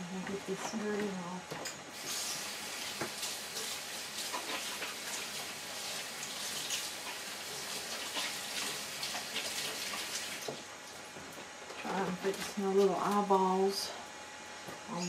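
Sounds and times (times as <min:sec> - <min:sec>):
water tap running: 0:01.9 - 0:10.7
hands washing with splashing: 0:02.0 - 0:11.0.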